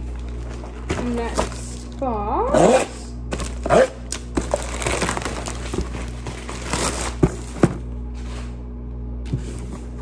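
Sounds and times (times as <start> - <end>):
plastic mailer crinkling: 0.0 - 2.1, 3.3 - 8.0.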